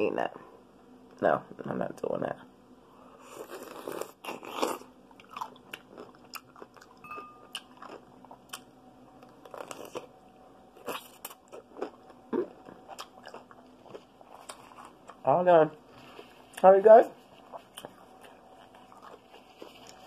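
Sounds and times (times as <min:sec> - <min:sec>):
wet chewing: 0:03.4 - 0:10.1, 0:10.8 - 0:15.2, 0:17.2 - 0:20.0
pickle crunching: 0:03.4 - 0:10.2, 0:10.8 - 0:15.2.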